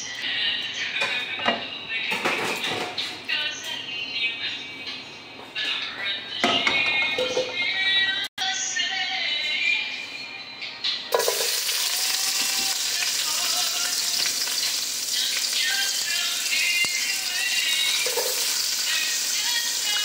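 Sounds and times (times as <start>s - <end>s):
onions sizzling in hot oil: 11.1s - 20.0s.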